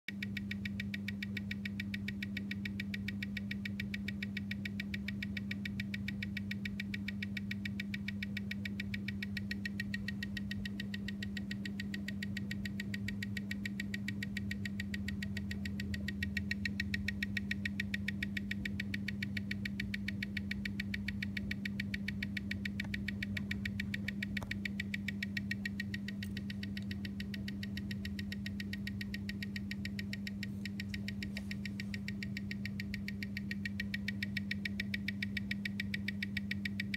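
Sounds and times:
steady hum: 0.1 - 36.9
watch ticking: 0.1 - 36.9.

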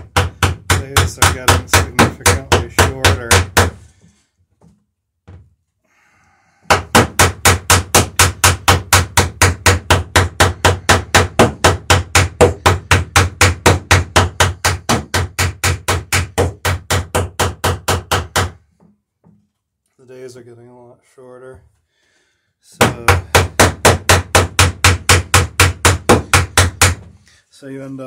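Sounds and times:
hammer tapping rapidly: 0.0 - 3.8, 6.7 - 18.6, 22.8 - 27.0.

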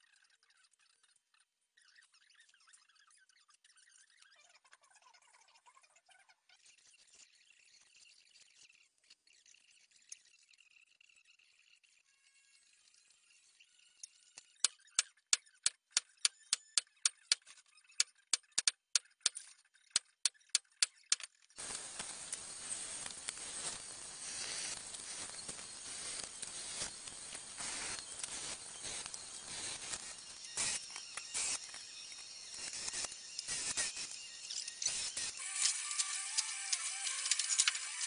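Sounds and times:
sharp clicks: 18.3 - 19.4
drill press boring into metal: 23.8 - 38.0.

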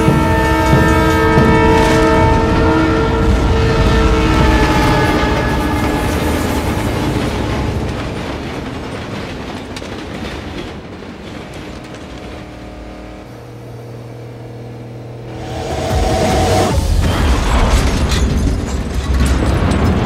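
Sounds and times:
train horn: 0.0 - 7.8, 11.7 - 16.9
train passing with clattering wheels: 0.0 - 20.0.

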